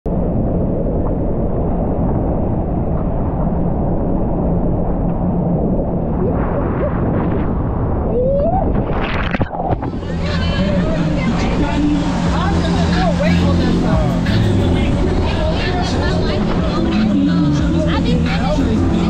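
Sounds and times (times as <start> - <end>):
wind buffeting microphone: 0.1 - 19.0
rushing water: 8.8 - 19.0.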